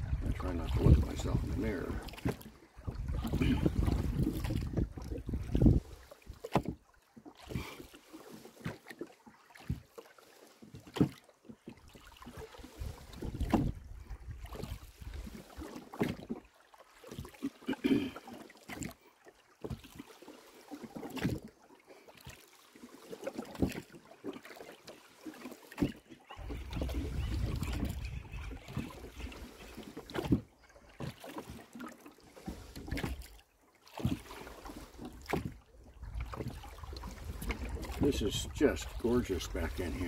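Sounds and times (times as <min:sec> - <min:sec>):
wind buffeting microphone: 0:00.0 - 0:02.0, 0:02.9 - 0:05.9, 0:26.4 - 0:28.8
water swirling from oars: 0:00.0 - 0:40.0
oars knocking in oarlocks: 0:13.1 - 0:13.8.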